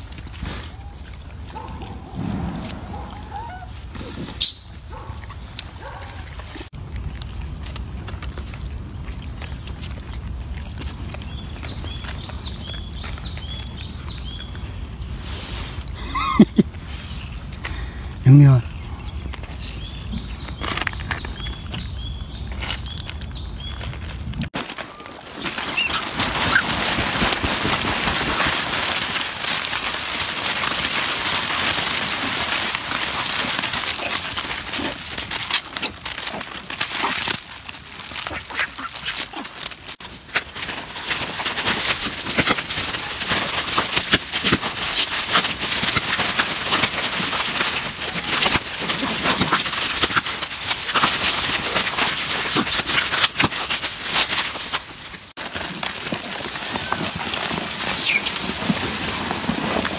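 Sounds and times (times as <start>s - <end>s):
macaques calling and squealing: 0.6s - 4.8s, 25.7s - 26.6s.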